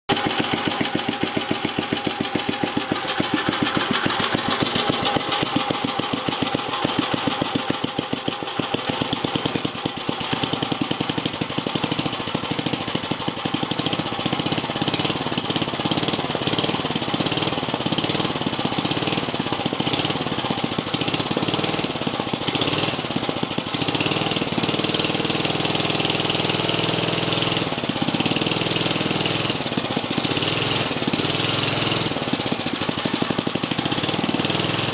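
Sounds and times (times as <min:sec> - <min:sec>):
single-cylinder engine running: 0:00.1 - 0:34.9.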